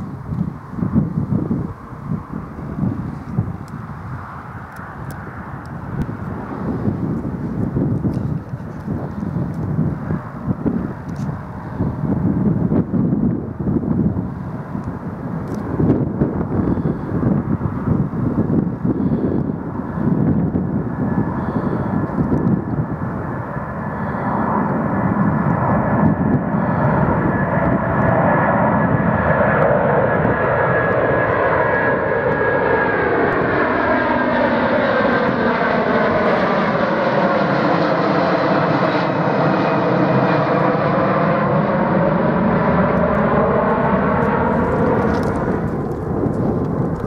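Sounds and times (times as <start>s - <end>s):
jet roar passing overhead: 0.0s - 47.0s.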